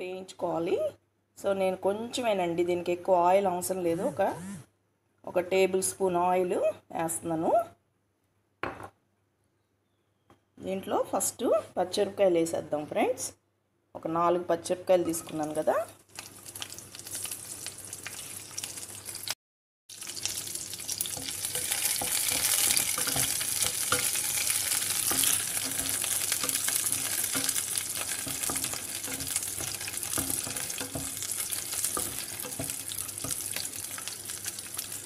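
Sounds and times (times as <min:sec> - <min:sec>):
chillies sizzling in oil: 0:14.9 - 0:35.0
wooden spatula scraping pan: 0:21.2 - 0:33.7.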